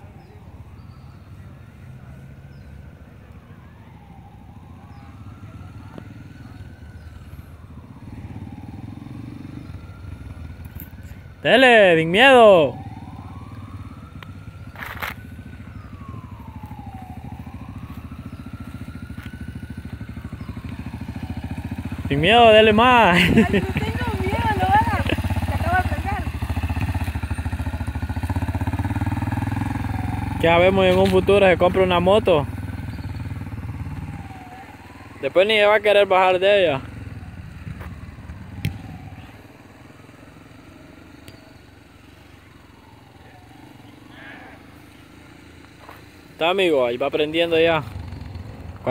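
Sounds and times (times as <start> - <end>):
motorcycle engine revving: 3.9 - 48.9.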